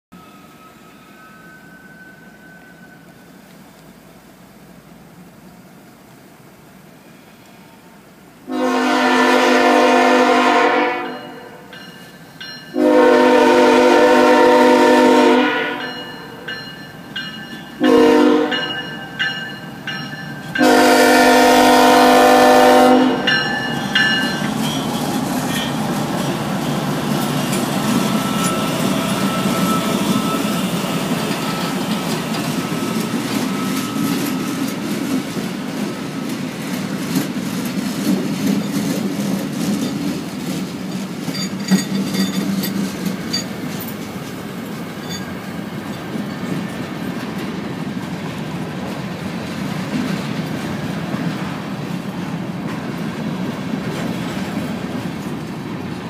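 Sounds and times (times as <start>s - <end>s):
train rumbling on rails: 0.2s - 56.0s
train horn blasts: 7.1s - 11.7s, 12.7s - 16.5s, 17.8s - 18.9s, 20.6s - 23.5s.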